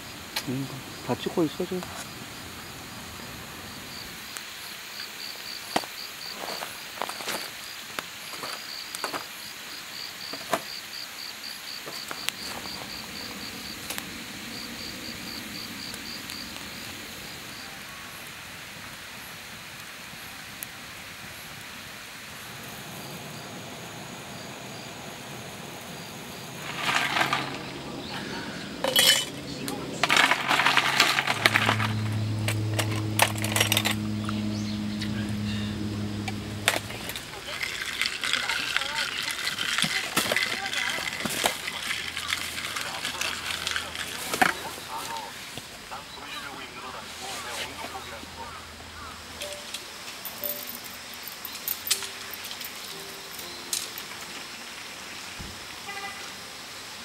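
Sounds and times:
cricket chirping: 0.0 - 18.5, 21.2 - 57.0
campfire crackling and popping: 0.2 - 9.3, 11.9 - 23.8, 25.0 - 33.4, 36.2 - 48.4
ice cubes clinking in a glass jar: 26.6 - 27.8, 28.8 - 32.1, 36.7 - 44.5.

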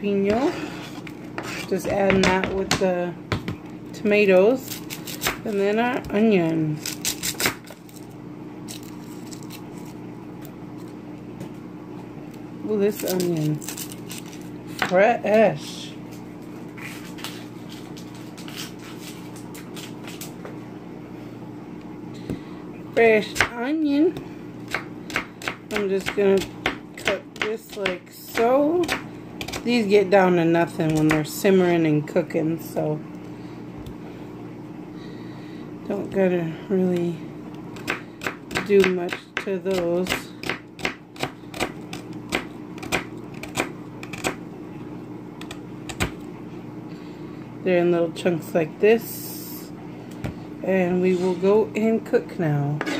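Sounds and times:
steady low hum: 0.0 - 52.9
knife chopping on cutting board: 24.7 - 29.6, 37.8 - 44.4.

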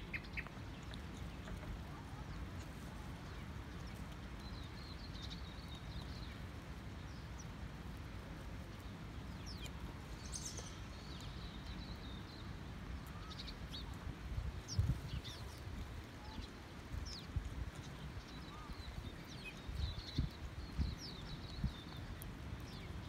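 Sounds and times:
small birds chirping: 0.0 - 8.0, 8.6 - 23.0
wallaby chewing with crunching clicks: 0.1 - 6.4.

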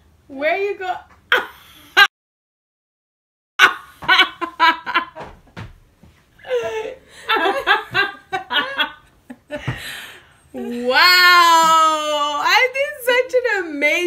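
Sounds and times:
woman laughing loudly: 3.6 - 5.3, 6.4 - 9.8.

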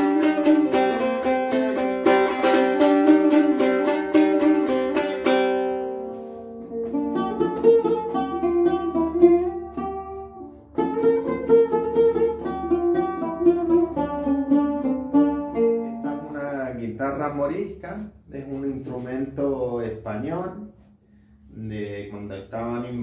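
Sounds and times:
lute strummed fast: 0.0 - 16.8
lute plucked melody: 0.0 - 21.0.

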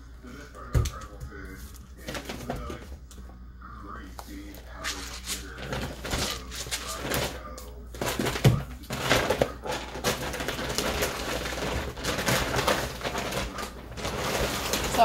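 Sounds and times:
shopping bag rustling and crinkling: 4.8 - 15.0.

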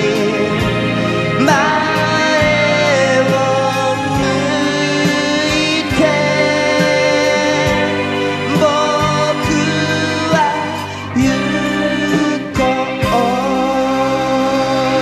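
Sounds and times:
band accompaniment: 0.0 - 15.0
man singing: 0.0 - 15.0
steady drum beat: 0.0 - 15.0.

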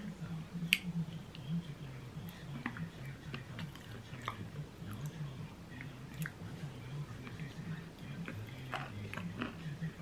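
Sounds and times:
quiet chewing: 2.2 - 10.0.

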